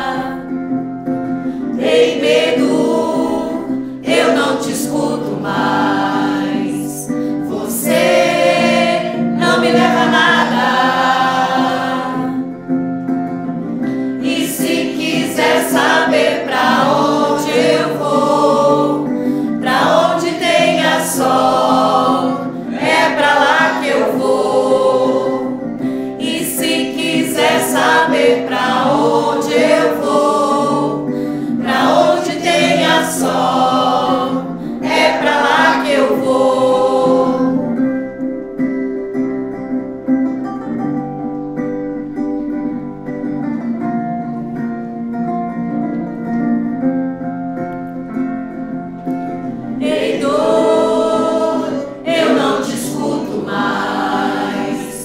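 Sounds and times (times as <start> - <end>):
mixed choir singing: 0.0 - 0.6, 1.5 - 12.5, 14.2 - 37.8, 49.5 - 55.0.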